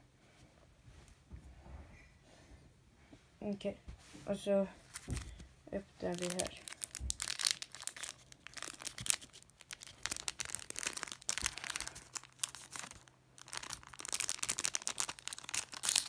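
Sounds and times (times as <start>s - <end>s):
cards rustling: 4.9s - 5.4s, 6.0s - 16.0s
foil wrapper crinkling: 6.0s - 16.0s.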